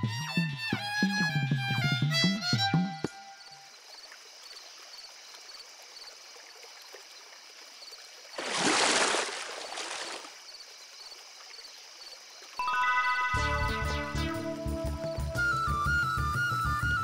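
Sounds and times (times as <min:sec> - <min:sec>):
net splashing into water: 0:08.3 - 0:10.4.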